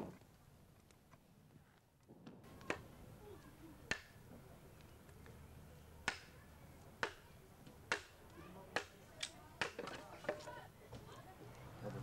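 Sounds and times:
fire popping: 0.0s - 5.4s
wood fire crackling: 0.0s - 12.0s.

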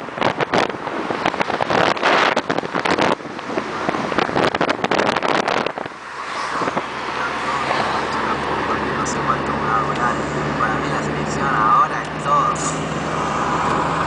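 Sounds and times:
wind buffeting microphone: 0.0s - 9.2s
car road and engine noise: 0.0s - 14.0s.

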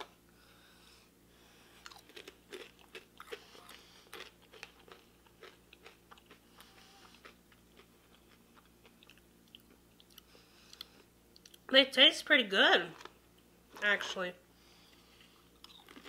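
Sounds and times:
crunching pasta chips: 1.8s - 10.2s, 15.6s - 16.0s.

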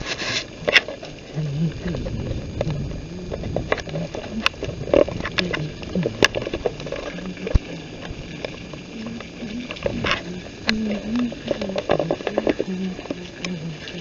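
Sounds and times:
small splashes: 0.0s - 14.0s.

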